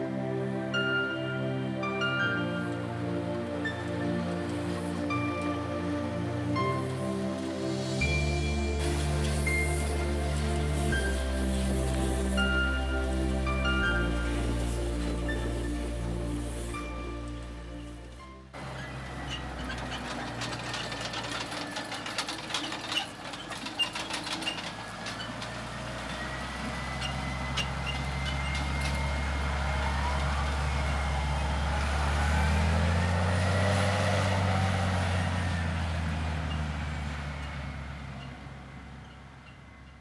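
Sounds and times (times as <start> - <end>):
tractor engine running: 2.2 - 40.0
thin high whine: 4.5 - 18.9.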